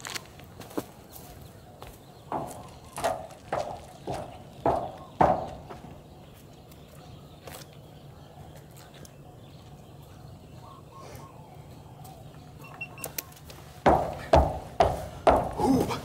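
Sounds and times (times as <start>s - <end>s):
footstep on dry ground: 0.0s - 7.9s
faint bird calls: 1.1s - 16.0s.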